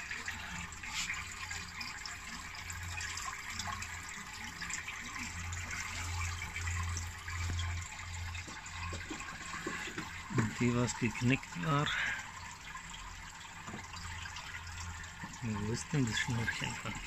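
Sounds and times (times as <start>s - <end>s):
water trickling: 0.0s - 17.0s.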